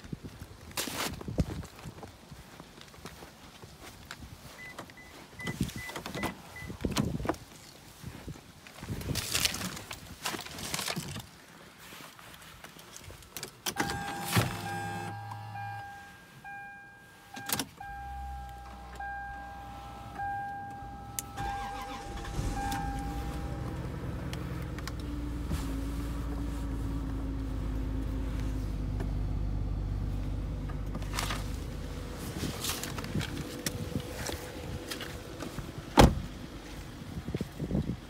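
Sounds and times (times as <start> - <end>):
car engine starting and idling: 13.6 - 38.0
warning chime beeping: 13.8 - 24.3.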